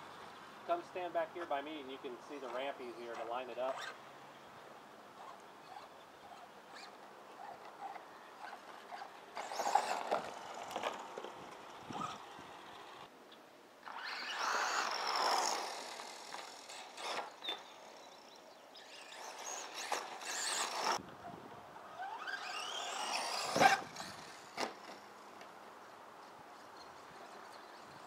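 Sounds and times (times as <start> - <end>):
electric motor whining: 13.9 - 21.0, 22.0 - 25.0.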